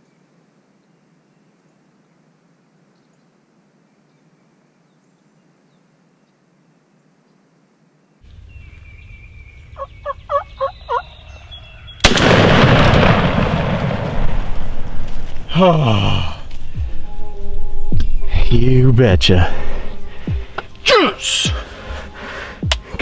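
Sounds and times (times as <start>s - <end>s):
turkey gobbling: 9.7s - 11.2s
loud gunshot: 12.0s - 15.0s.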